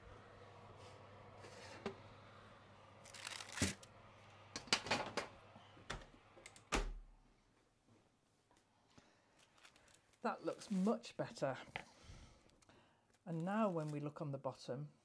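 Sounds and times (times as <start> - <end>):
paper rustling: 3.1 - 3.8.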